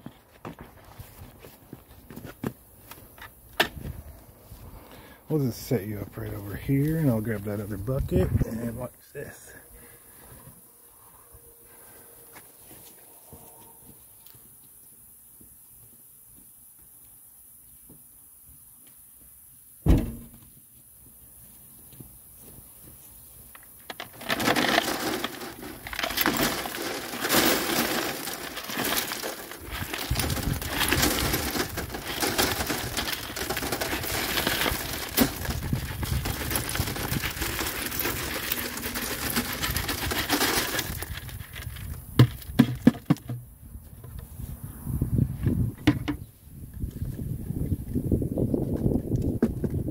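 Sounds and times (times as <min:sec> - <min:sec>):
rocks clattering on wire screen: 0:23.6 - 0:43.2.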